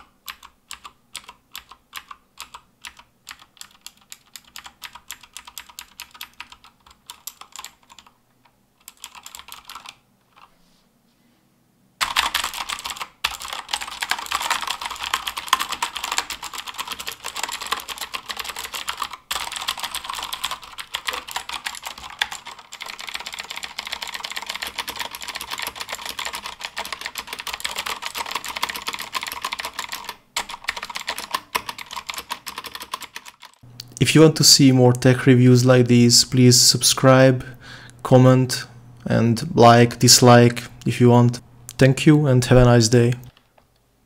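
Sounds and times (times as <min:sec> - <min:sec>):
mechanical keyboard typing: 0:00.0 - 0:08.2, 0:08.8 - 0:10.5, 0:12.0 - 0:33.6.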